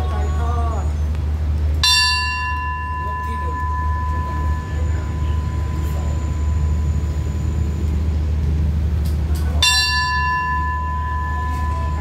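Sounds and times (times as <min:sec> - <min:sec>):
train engine humming: 0:00.0 - 0:12.0
brass bell ringing: 0:01.8 - 0:08.1, 0:09.6 - 0:12.0.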